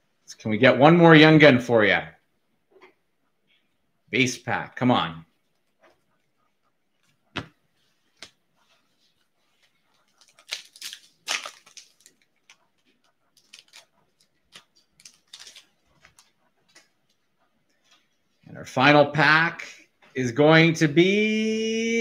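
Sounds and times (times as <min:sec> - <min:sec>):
wrapper crinkling: 0:09.5 - 0:16.4
foil pack tearing open: 0:10.2 - 0:12.2, 0:13.4 - 0:15.8.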